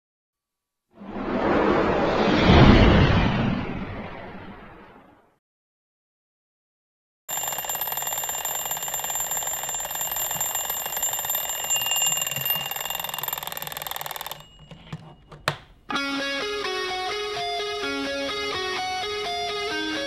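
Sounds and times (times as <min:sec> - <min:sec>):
alarm clock bells ringing: 0:07.3 - 0:15.3.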